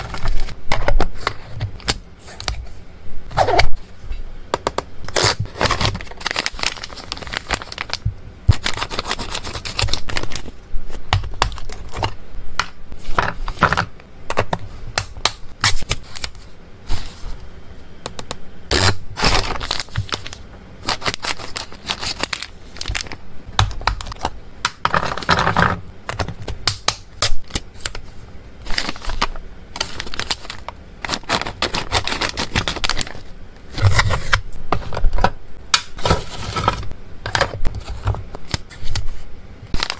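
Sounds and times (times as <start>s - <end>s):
plastic and foil packaging crinkling: 0.0s - 2.5s, 5.1s - 12.2s, 18.7s - 24.3s, 27.3s - 35.2s, 37.8s - 39.9s.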